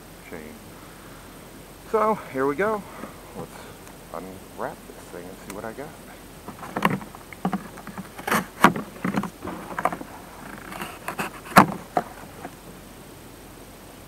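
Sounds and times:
cardboard scraping and rustling: 0:03.0 - 0:03.6, 0:06.4 - 0:12.6
sharp knocks: 0:06.5 - 0:12.5.

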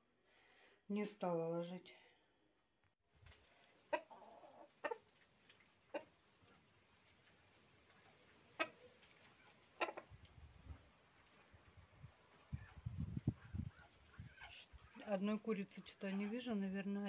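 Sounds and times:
chickens clucking: 0:03.3 - 0:17.0.

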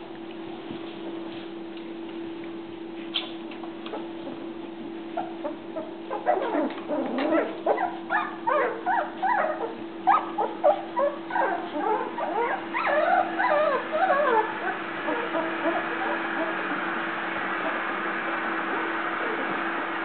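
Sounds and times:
steady low hum: 0:00.0 - 0:20.0
puppies whimpering and squeaking: 0:03.2 - 0:16.8.

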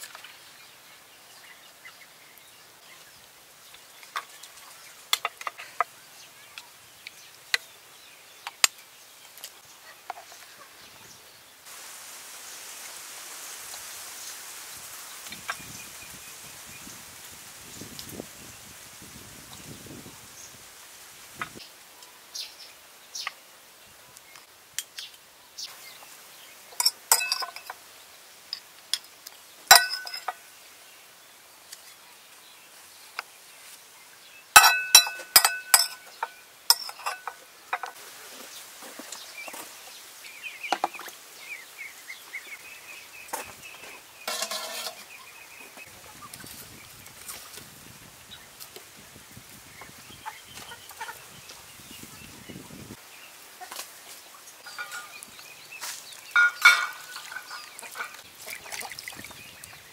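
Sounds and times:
dishes and utensils clinking: 0:26.7 - 0:27.8, 0:29.7 - 0:30.4, 0:34.6 - 0:38.0, 0:44.3 - 0:45.1, 0:54.6 - 0:55.2, 0:56.3 - 0:58.2.

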